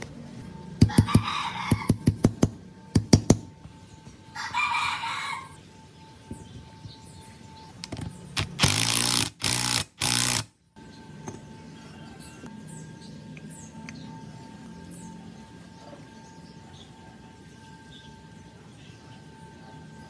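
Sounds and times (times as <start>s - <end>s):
impact wrench bursts: 8.4s - 10.5s.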